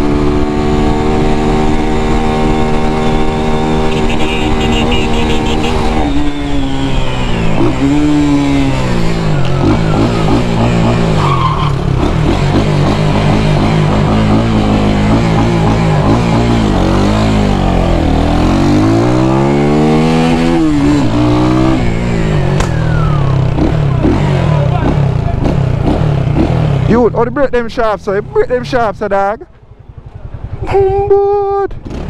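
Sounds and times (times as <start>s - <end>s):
motorcycle engine revving: 0.0s - 32.0s.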